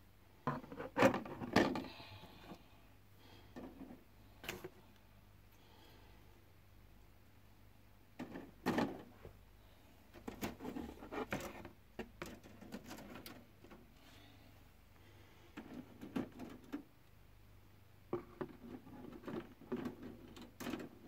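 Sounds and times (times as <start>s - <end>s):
plastic parts rustling and clicking: 10.1s - 13.8s, 15.6s - 16.9s, 18.1s - 21.0s.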